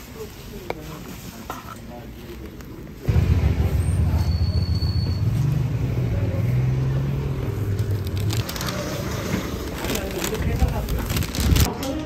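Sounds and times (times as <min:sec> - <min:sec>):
vehicle engine rumbling: 0:03.1 - 0:11.7.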